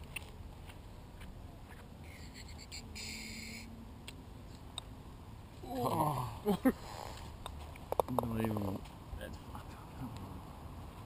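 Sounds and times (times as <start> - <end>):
bird calling: 1.6 - 3.7.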